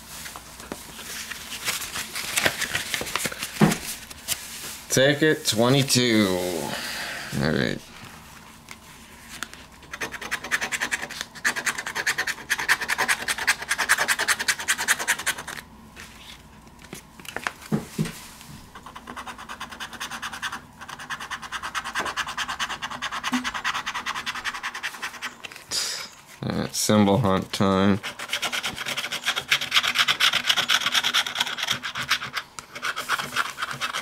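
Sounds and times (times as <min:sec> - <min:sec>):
scratching lottery ticket: 0:09.8 - 0:15.6, 0:18.8 - 0:25.4, 0:27.9 - 0:34.0.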